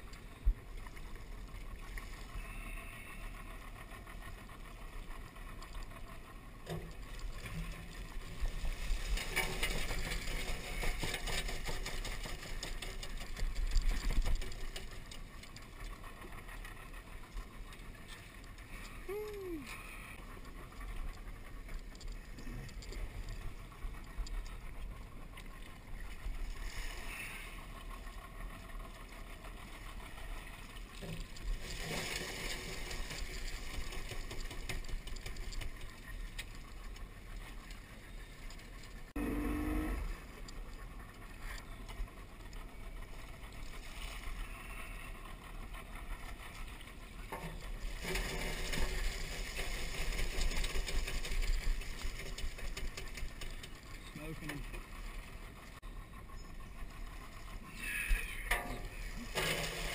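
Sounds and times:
outboard motor running: 0.0 - 59.9
wire traps rattling: 58.5 - 59.9.

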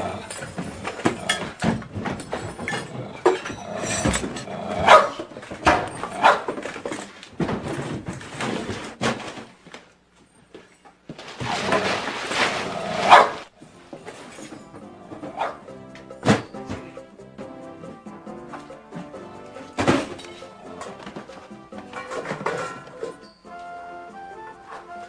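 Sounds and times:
dog barking: 4.8 - 5.2, 6.2 - 6.5, 13.0 - 13.5, 15.3 - 15.7.

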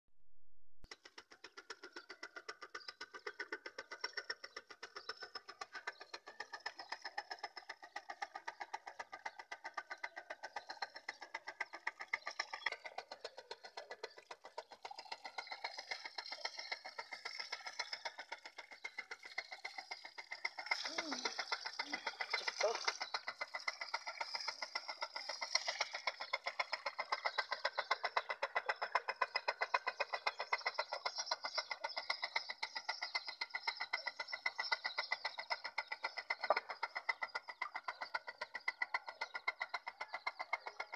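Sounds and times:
pump motor pulsing hum: 3.8 - 28.7.

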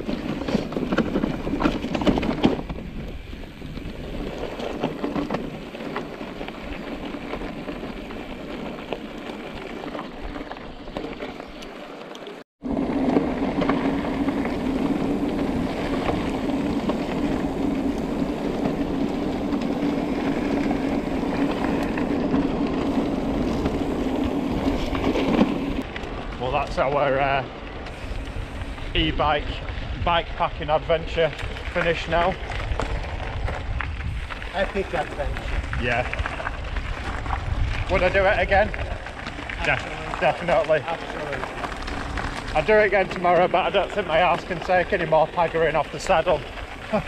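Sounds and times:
bike tyres rumbling on track: 0.0 - 47.0
wind on microphone: 12.6 - 40.2.

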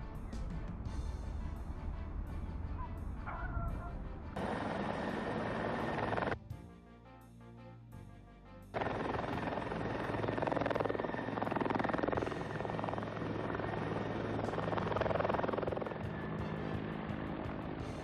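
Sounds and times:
helicopter rotor chop: 4.4 - 6.4, 8.8 - 18.0.

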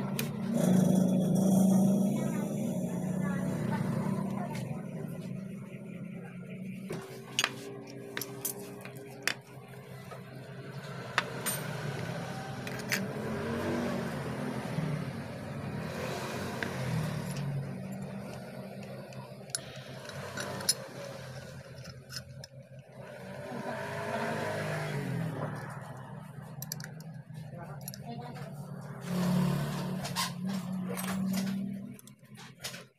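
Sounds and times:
vehicle engine running: 0.0 - 32.9
clicks of small metal parts: 16.6 - 22.6, 26.6 - 27.2.

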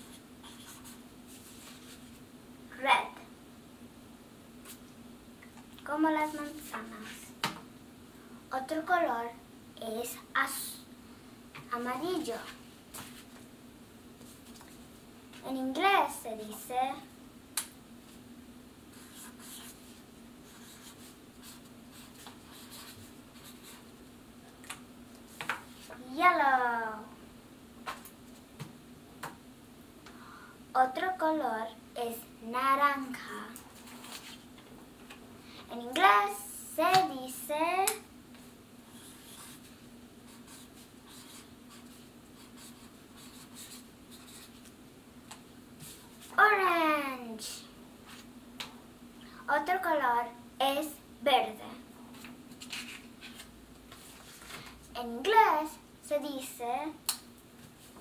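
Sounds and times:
marker scratching on paper: 0.0 - 2.0, 18.9 - 23.9, 38.9 - 39.7, 40.3 - 44.7.

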